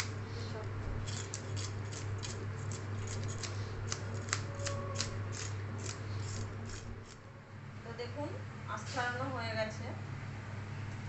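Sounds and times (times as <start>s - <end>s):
steady low hum: 0.0s - 11.0s
fish scaler scraping scales: 1.0s - 7.2s.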